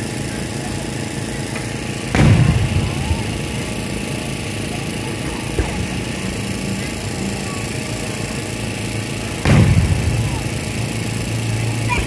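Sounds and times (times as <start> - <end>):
fireworks background noise: 0.1 - 12.0
firework thump: 2.1 - 3.7, 5.5 - 6.2, 9.5 - 10.9.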